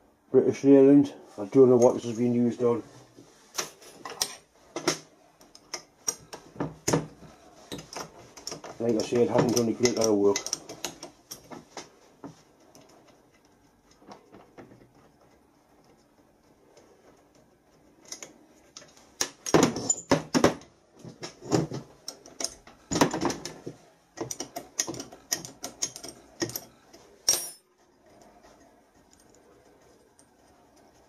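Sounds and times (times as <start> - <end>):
spanner clinking against metal bolts: 7.7 - 11.5, 24.2 - 27.7.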